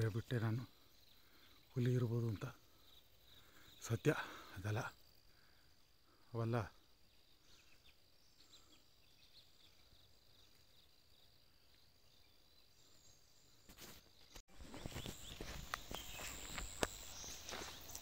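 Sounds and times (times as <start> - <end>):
faint bird chirps: 0.0 - 18.0
insect drone: 0.0 - 18.0
footsteps on dry leaves: 14.5 - 18.0.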